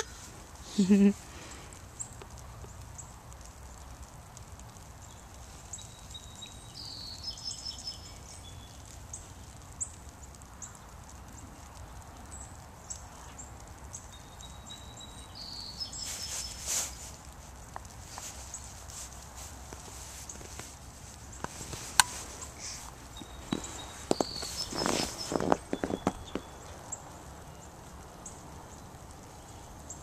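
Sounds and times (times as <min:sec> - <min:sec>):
light ticks: 0:00.0 - 0:15.2, 0:15.9 - 0:30.0
faint high-pitched chirping: 0:05.0 - 0:11.6, 0:12.2 - 0:17.2, 0:22.1 - 0:30.0
scratchy rustle: 0:16.0 - 0:26.7.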